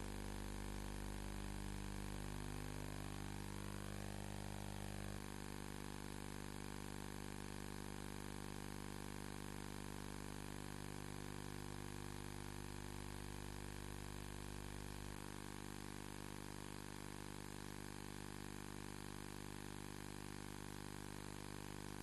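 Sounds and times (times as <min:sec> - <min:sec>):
electrical hum with hiss: 0:00.0 - 0:06.2.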